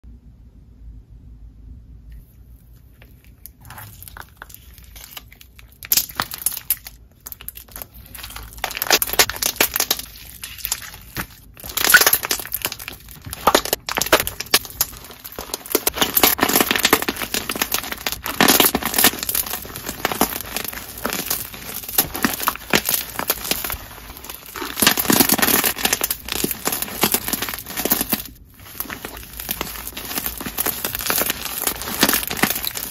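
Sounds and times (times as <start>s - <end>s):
slime crunching and crackling: 2.8s - 32.9s.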